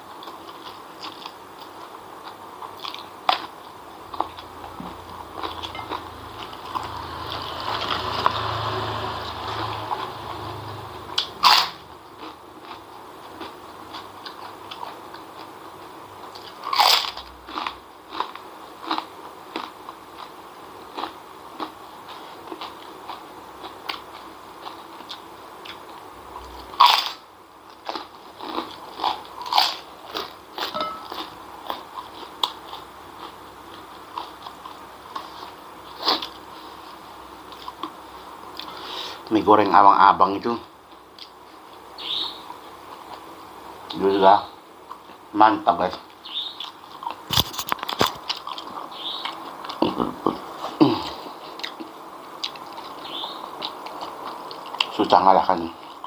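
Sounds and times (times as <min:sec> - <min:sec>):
crunching into crisp cracker: 0:11.2 - 0:38.9, 0:45.9 - 0:56.0
wet chewing: 0:46.4 - 0:55.0.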